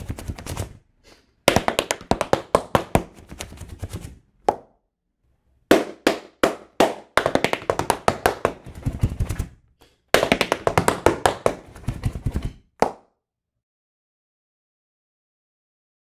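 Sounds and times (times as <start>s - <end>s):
tap shoes on wooden floor: 1.5s - 4.7s, 5.7s - 13.0s.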